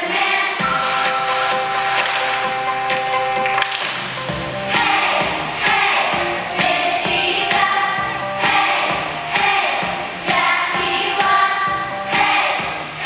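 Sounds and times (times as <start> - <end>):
children's choir singing: 0.0 - 2.8, 4.4 - 13.0
instrumental music with steady beat: 0.6 - 13.0.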